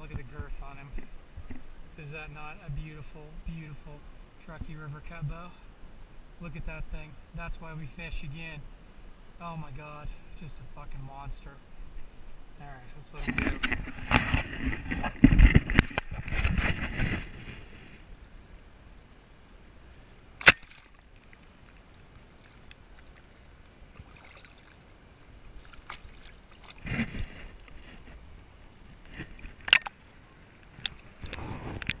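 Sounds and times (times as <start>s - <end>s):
water splash: 20.4s - 27.4s
water sloshing around hands: 20.4s - 27.8s.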